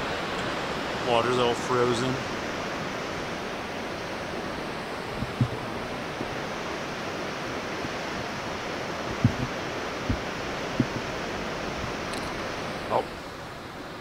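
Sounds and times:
wind rushing on microphone: 0.0 - 14.0
dull bumps: 5.1 - 6.3, 9.1 - 11.2.

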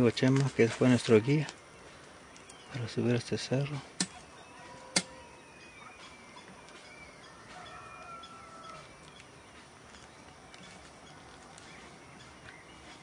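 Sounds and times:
sharp click: 4.0 - 4.2, 4.9 - 5.1
rooster crowing faintly: 4.2 - 9.1.

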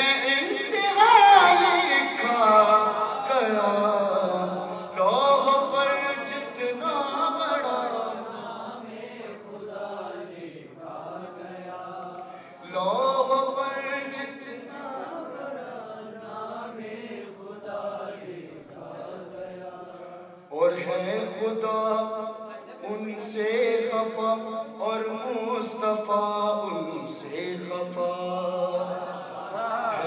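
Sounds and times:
man chanting: 0.0 - 8.0, 20.5 - 30.0.

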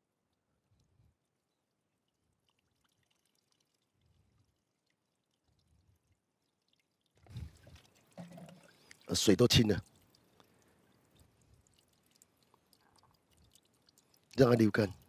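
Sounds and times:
faint water pouring and trickling: 0.0 - 15.0.

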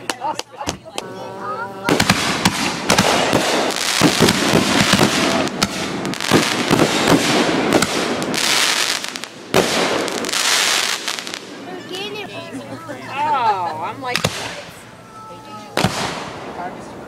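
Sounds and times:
fireworks cracks and bangs: 1.8 - 11.7, 14.1 - 14.8, 15.7 - 16.9.

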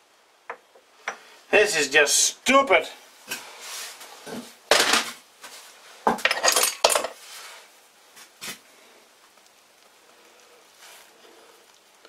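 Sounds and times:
metal parts clinking and scraping: 6.2 - 7.2.

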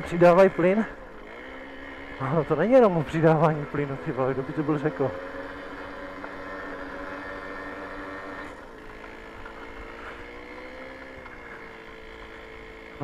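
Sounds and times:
two-stroke moped engine under load: 0.0 - 13.0.

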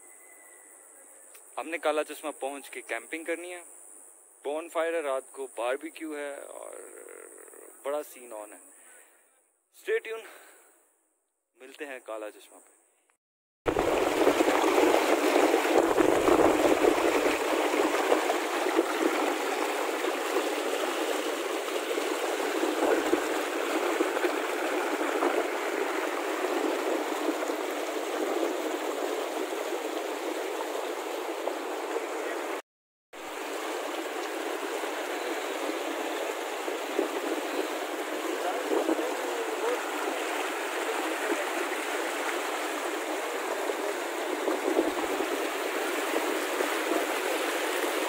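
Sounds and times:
fast river rushing: 13.7 - 32.6, 33.2 - 48.0.

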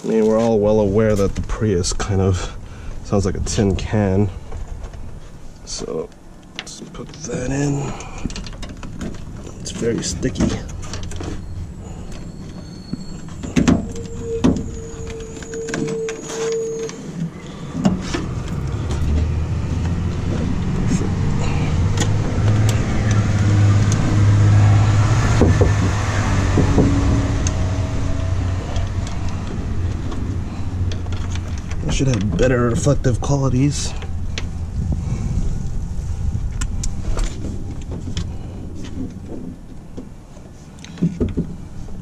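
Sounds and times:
low motor hum: 10.3 - 40.2.

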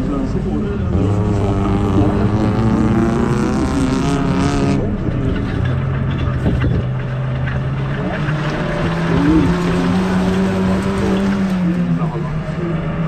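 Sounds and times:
racing car engine revving: 0.0 - 13.0.

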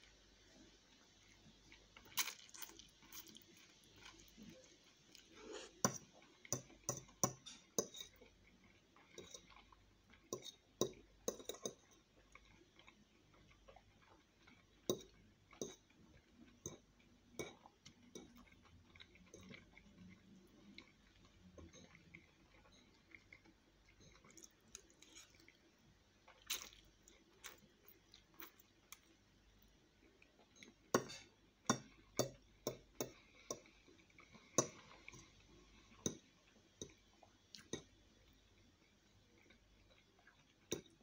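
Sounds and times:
fork scraping ceramic plate: 31.0 - 31.3.

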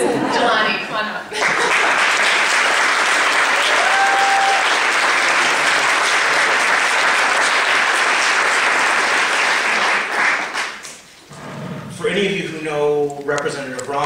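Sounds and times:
audience applauding: 1.4 - 11.0.

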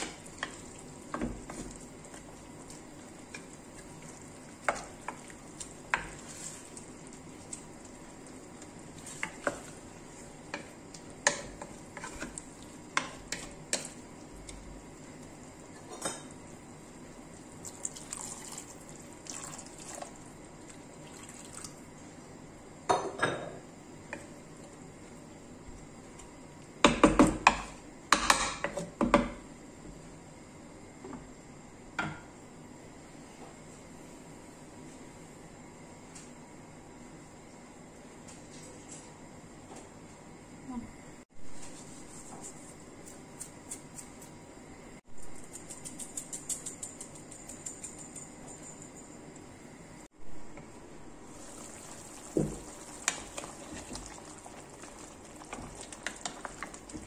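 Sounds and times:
faint food sizzle: 0.0 - 23.0, 50.7 - 57.0
wooden spoon knocking on pot: 52.2 - 54.2.

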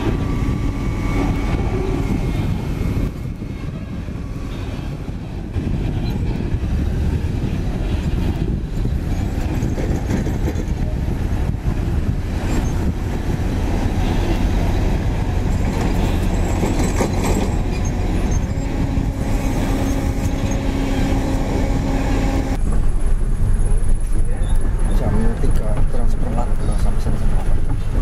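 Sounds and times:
steady engine hum: 0.0 - 28.0
trailer rumbling and rattling: 0.0 - 28.0
truck cab drone: 17.5 - 25.8.

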